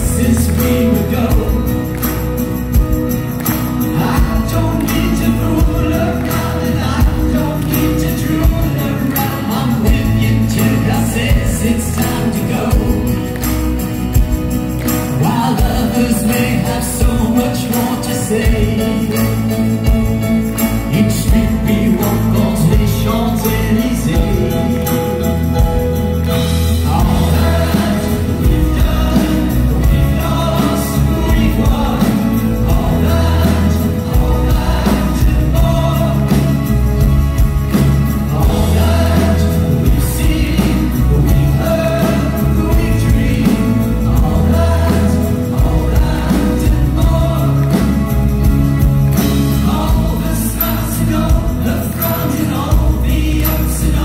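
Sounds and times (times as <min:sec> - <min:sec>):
band playing pop-rock: 0:00.0 - 0:54.0
man singing: 0:00.0 - 0:54.0.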